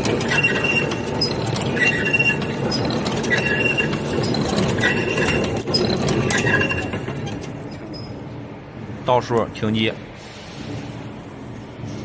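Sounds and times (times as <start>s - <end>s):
wire making machine clattering: 0.0s - 8.2s
squeaky metallic chink: 0.0s - 8.3s.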